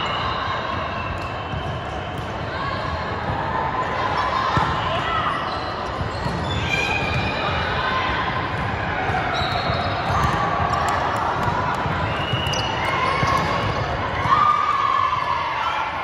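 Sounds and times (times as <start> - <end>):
sneakers squeaking on court: 5.3 - 7.6, 9.1 - 10.6.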